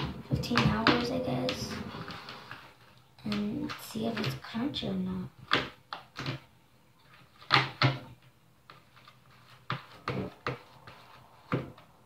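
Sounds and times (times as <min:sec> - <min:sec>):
utensil scraping plastic tub: 0:00.0 - 0:04.9.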